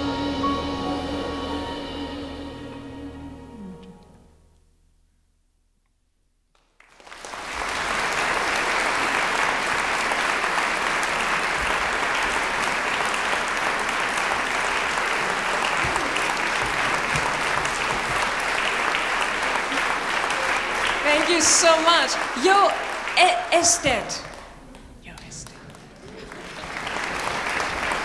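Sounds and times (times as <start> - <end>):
audience applause: 6.6 - 28.0.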